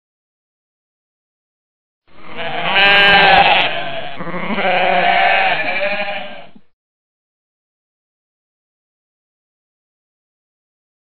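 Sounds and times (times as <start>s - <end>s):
goat bleating: 2.2s - 6.6s.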